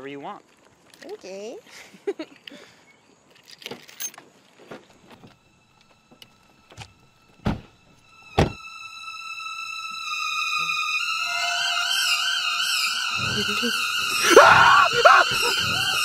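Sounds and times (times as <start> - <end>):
musical drone: 5.4 - 16.0
car doors shutting: 6.7 - 8.6.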